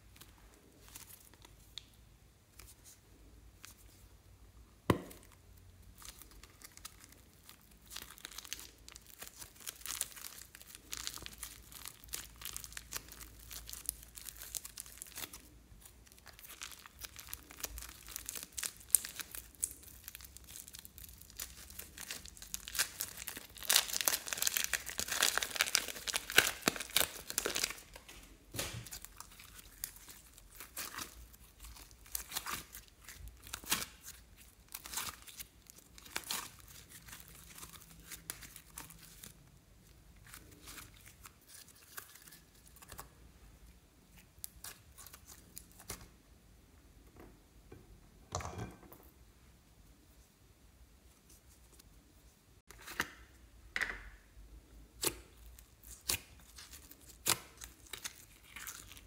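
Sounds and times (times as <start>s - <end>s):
slime crackling and popping: 6.0s - 39.4s, 55.0s - 59.0s.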